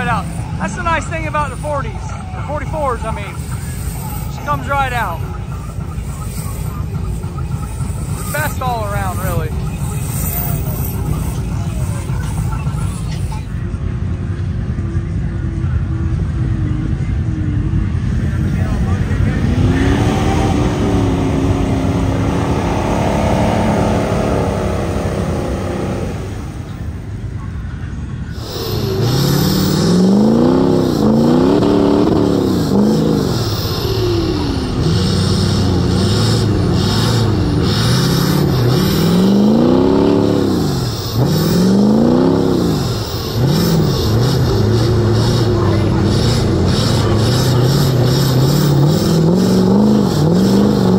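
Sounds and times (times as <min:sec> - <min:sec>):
truck engine revving: 0:00.0 - 0:50.9.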